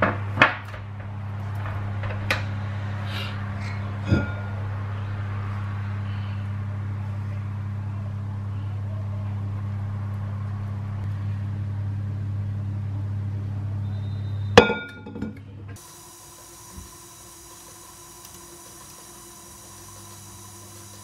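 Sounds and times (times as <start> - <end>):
appliance motor humming: 15.8 - 21.0.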